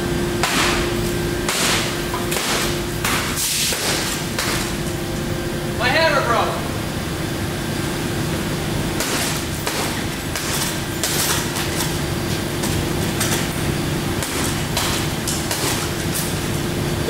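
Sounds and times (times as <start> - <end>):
steady hum: 0.0 - 17.0
hammer hitting glass: 0.4 - 0.9, 1.5 - 4.7, 9.0 - 11.9, 14.2 - 16.0.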